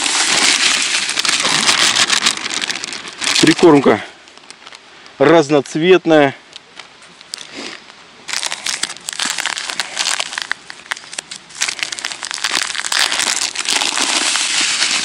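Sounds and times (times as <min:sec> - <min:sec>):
plastic bag crinkling: 0:00.0 - 0:04.8, 0:08.3 - 0:15.0.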